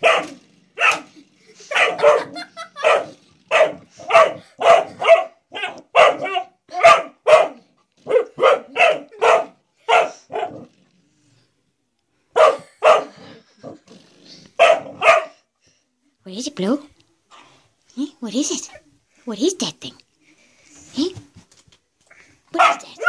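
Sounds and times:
puppy barking: 0.0 - 1.1, 1.7 - 10.7, 12.4 - 13.2, 14.6 - 15.4, 22.6 - 23.0.

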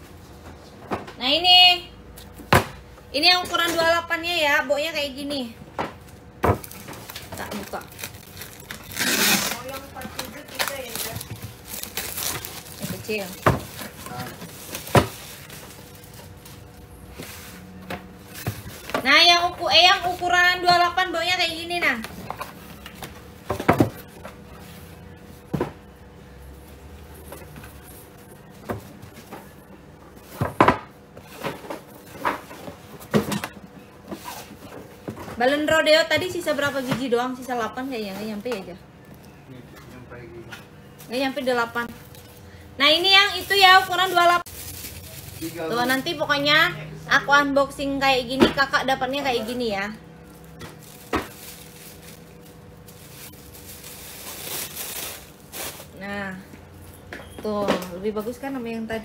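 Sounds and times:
plastic wrapping rustling: 6.6 - 25.5, 41.1 - 46.5, 48.8 - 56.8.

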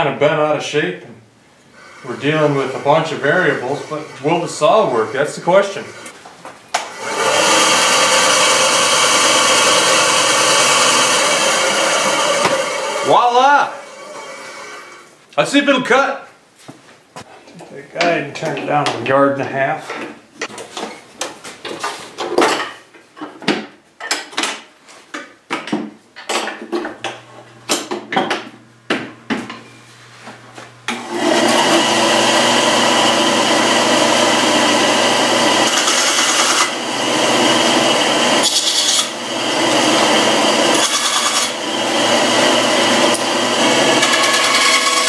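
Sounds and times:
bandsaw sawing a board: 1.8 - 6.1, 6.8 - 15.1, 30.9 - 45.0.

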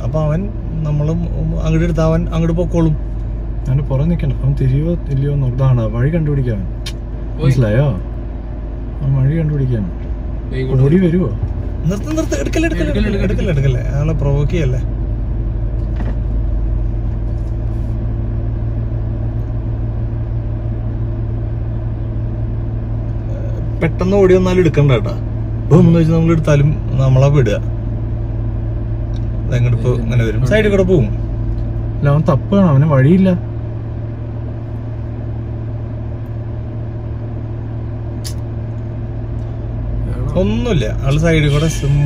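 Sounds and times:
car engine idling: 0.0 - 42.0
brief click: 38.2 - 38.5.

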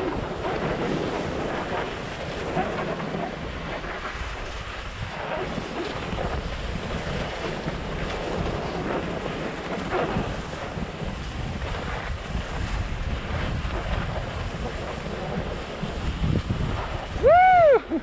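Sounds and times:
skis sliding on snow: 0.0 - 18.0
wind buffeting microphone: 0.0 - 18.0.

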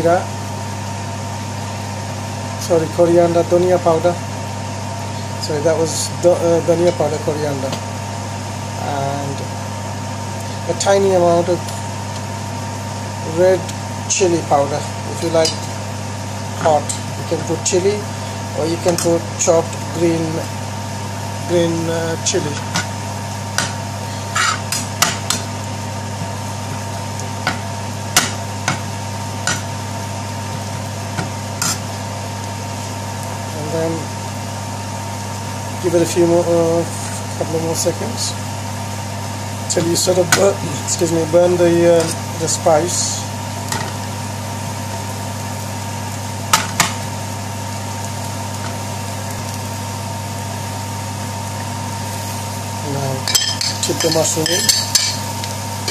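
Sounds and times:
steady low hum: 0.0 - 55.9
metal spoon scraping frying pan: 24.2 - 24.9, 53.2 - 55.2.

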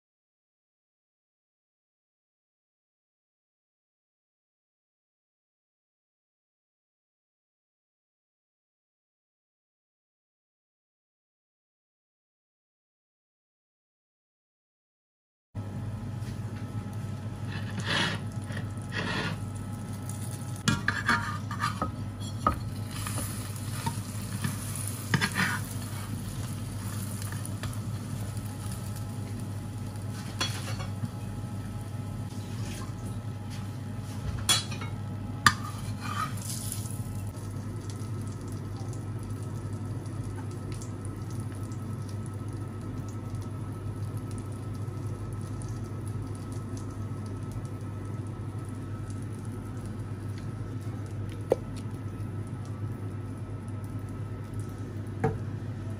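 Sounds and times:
food frying in a pan: 16.1 - 55.9
spatula scraping a pan: 17.4 - 19.5, 20.6 - 26.2, 30.1 - 30.9, 35.5 - 36.9.

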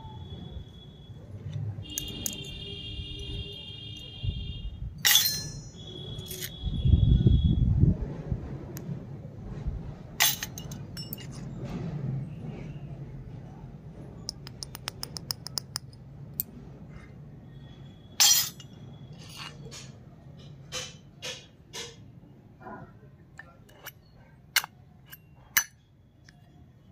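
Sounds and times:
small metal utensils clinking: 5.0 - 6.6, 10.2 - 11.5, 18.2 - 22.0.

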